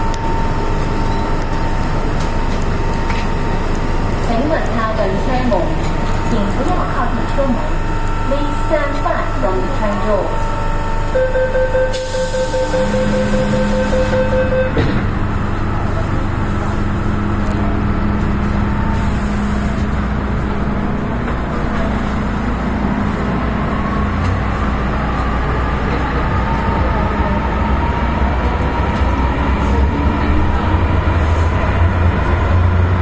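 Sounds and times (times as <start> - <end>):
low rumble of train: 0.0 - 33.0
steady train hum: 0.0 - 33.0
train doors thudding shut: 13.5 - 15.3.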